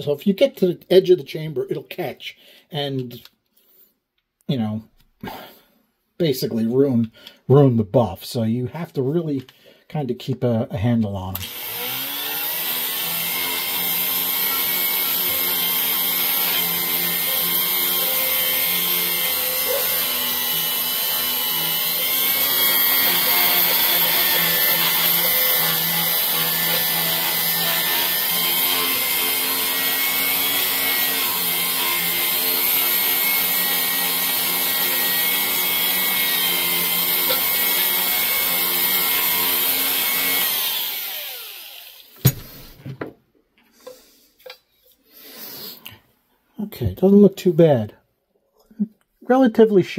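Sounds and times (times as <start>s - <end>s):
die grinder whining: 11.3s - 42.8s
grinder winding down: 11.4s - 42.7s.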